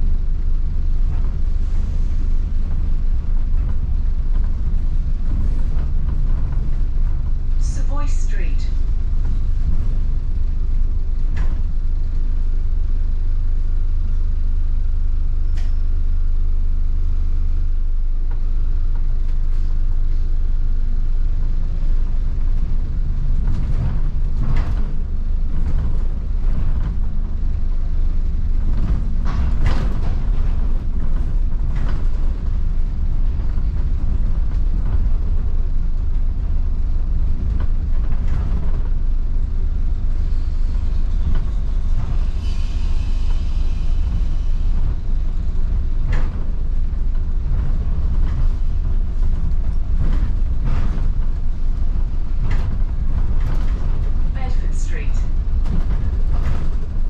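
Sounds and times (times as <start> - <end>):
bus rumbling on road: 0.0 - 57.0
body and fittings rattling: 22.6 - 36.4.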